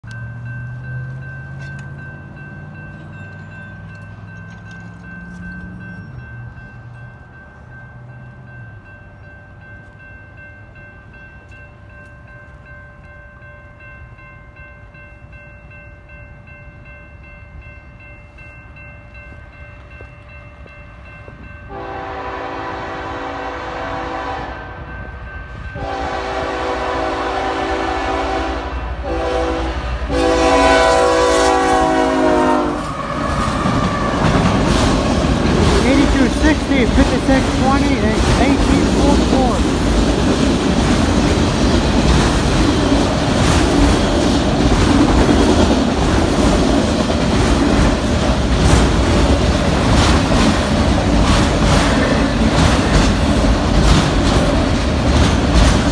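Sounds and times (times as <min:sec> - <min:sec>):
crossing bell ringing: 0:00.0 - 0:55.9
train passing: 0:00.0 - 0:55.9
train horn blasts: 0:21.7 - 0:25.0, 0:25.7 - 0:33.0.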